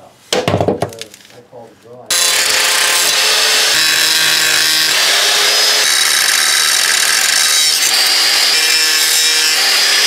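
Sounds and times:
angle grinder grinding steel: 2.1 - 10.0.

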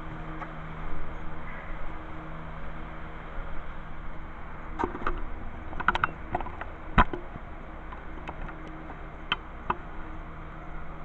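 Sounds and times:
steady low hum: 0.0 - 11.0
knocks and clicks: 4.8 - 7.3, 7.9 - 9.8.

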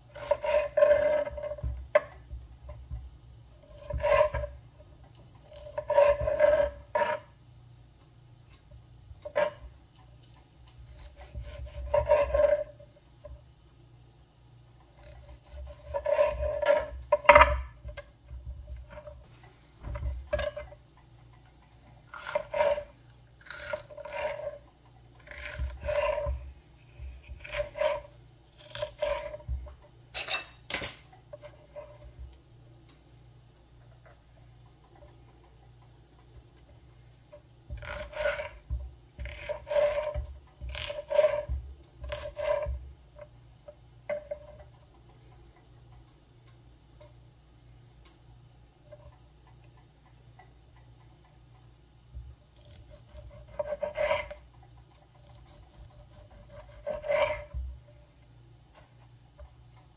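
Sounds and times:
rasping scraping strokes: 52.9 - 54.4, 55.8 - 57.6.

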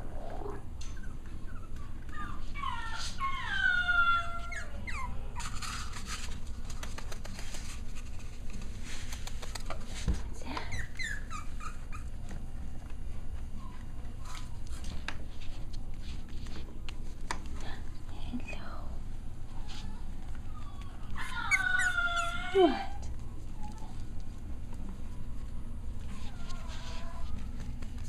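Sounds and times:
puppy whining: 0.0 - 6.6, 10.4 - 15.6, 19.4 - 28.0
paw clicks and handling rustles: 0.8 - 18.5, 19.4 - 28.0.

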